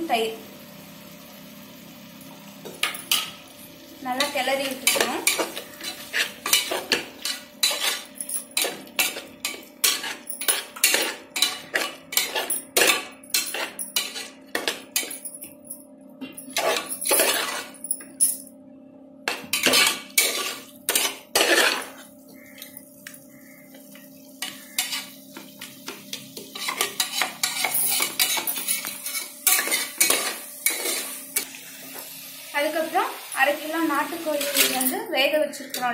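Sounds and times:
metal spatula scraping a pot: 4.2 - 14.7, 16.6 - 17.8, 19.5 - 22.0, 24.4 - 25.2, 26.4 - 31.1.

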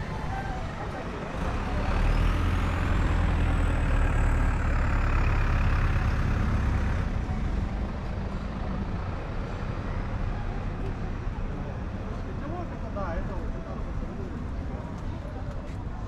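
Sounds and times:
heavy vehicle engine rumble: 0.0 - 16.0.

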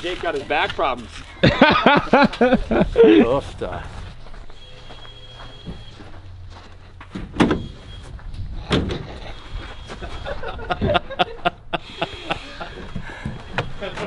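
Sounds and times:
heavy thuds of wooden ramp: 8.5 - 9.2.

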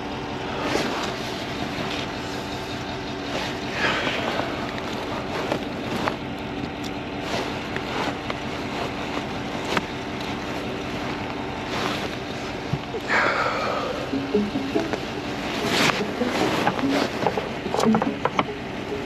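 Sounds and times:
vehicle engine idling: 0.0 - 19.0
sharp clicks and knocks: 15.8 - 18.6.

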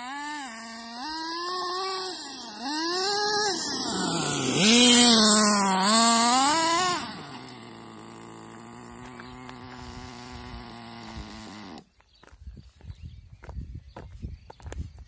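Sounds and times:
model nitro engine revving and idling: 0.0 - 11.9.

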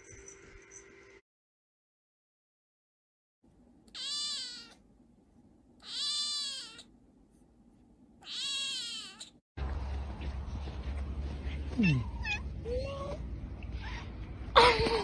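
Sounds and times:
kitten meowing: 3.9 - 4.8, 5.8 - 6.9, 8.2 - 9.4.

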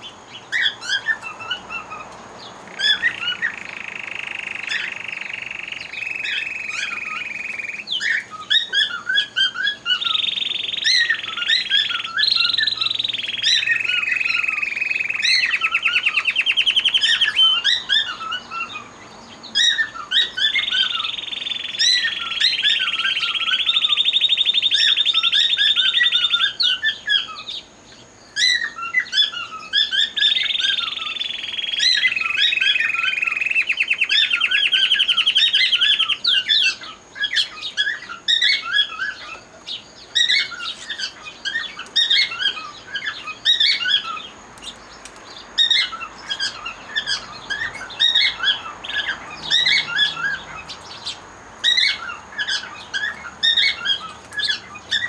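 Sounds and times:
canaries trilling: 0.0 - 55.0
bird chirps and whistles: 2.7 - 18.8, 19.6 - 27.6, 28.4 - 39.4.

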